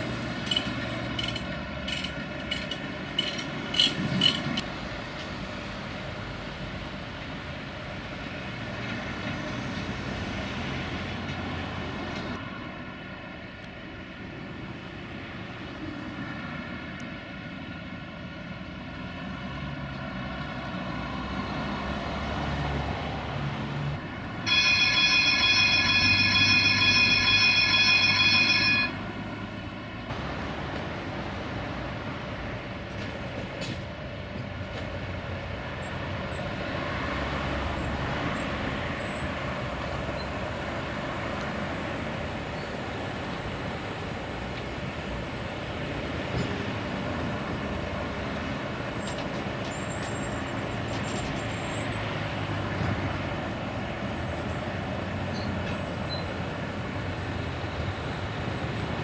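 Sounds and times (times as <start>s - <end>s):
truck winch machinery noise: 0.0s - 4.7s, 24.5s - 29.0s, 48.0s - 59.0s.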